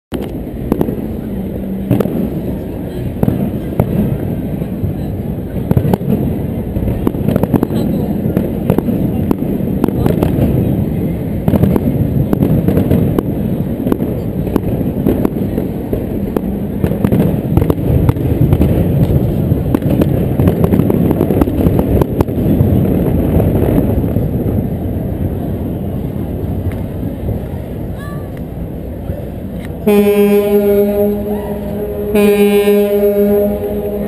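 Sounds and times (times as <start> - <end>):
fireworks bangs and crackles: 0.1 - 25.3
low rumble: 0.1 - 34.0.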